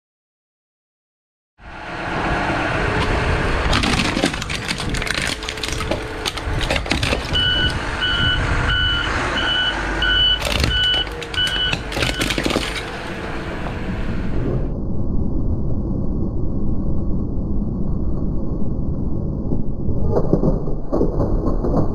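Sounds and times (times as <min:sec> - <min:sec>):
heavy vehicle engine running: 0:01.6 - 0:14.7
plastic casing cracking and snapping: 0:03.7 - 0:07.7, 0:10.4 - 0:13.0
reversing alarm beeping: 0:07.2 - 0:12.5.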